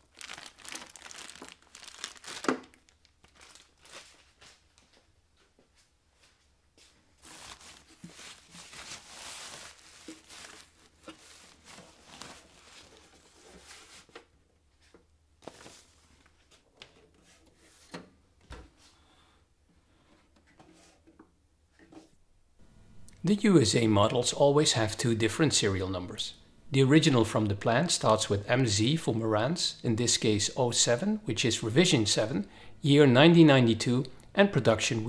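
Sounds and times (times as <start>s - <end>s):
plastic wrap rustling and crinkling: 0.0s - 5.0s, 6.9s - 17.8s.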